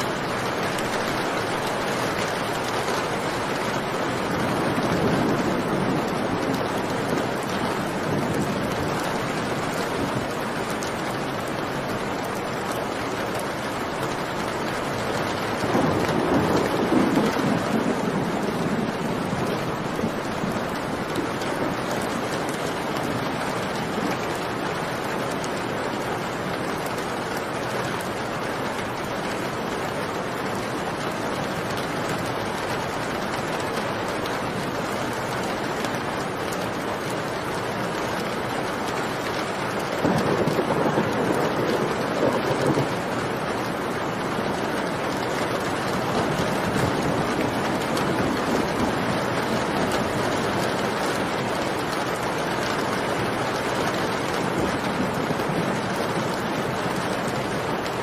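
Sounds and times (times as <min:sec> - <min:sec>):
thunder rumbling: 0:00.0 - 0:12.6, 0:14.0 - 0:24.6, 0:39.9 - 0:58.0
heavy rain: 0:00.0 - 0:58.0.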